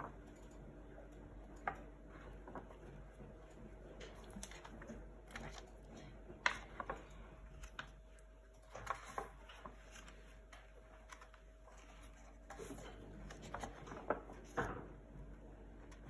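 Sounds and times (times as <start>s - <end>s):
faint paper rustles and taps: 1.6s - 3.4s, 6.3s - 8.1s, 8.7s - 15.0s
sketchbook pages turning: 4.2s - 5.7s, 6.4s - 14.8s.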